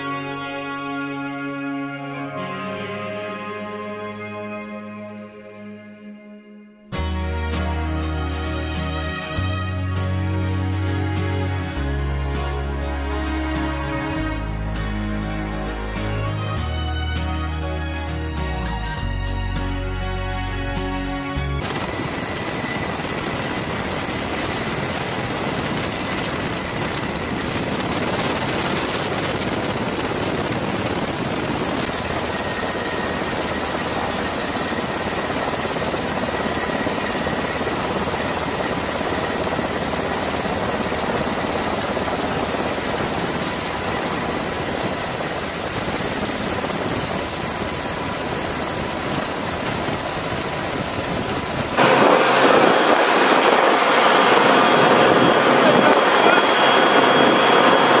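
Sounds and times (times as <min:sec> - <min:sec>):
jet engines roaring: 0:21.6 - 0:58.0.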